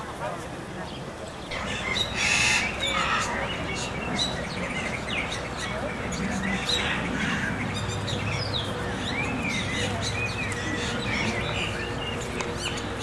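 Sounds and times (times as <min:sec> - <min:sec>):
steady low hum: 0:00.0 - 0:13.0
small birds chirping: 0:00.8 - 0:13.0.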